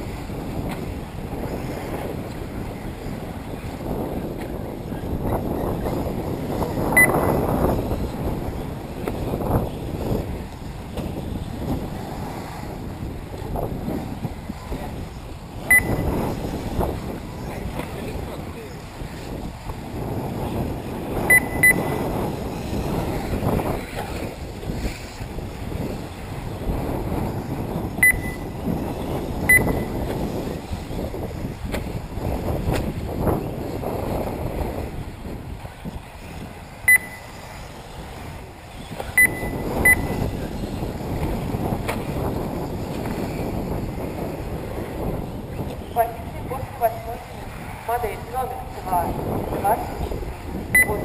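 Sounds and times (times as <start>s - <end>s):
wind buffeting microphone: 0.0s - 51.0s
short high electronic beeps: 15.7s - 16.1s, 21.3s - 21.9s, 28.0s - 28.5s, 29.5s - 29.9s, 36.9s - 37.3s, 39.2s - 40.2s, 50.8s - 51.0s.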